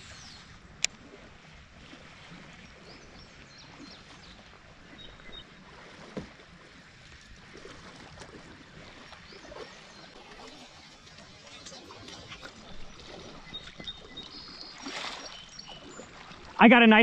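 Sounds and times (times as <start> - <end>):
water washing against hull: 0.0 - 17.0.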